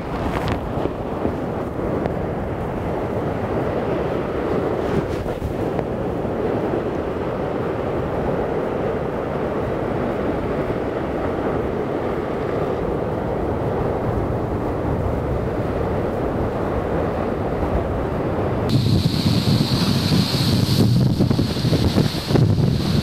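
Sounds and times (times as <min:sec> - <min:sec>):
wind buffeting microphone: 0:00.0 - 0:23.0
surf breaking on rocks: 0:18.7 - 0:23.0.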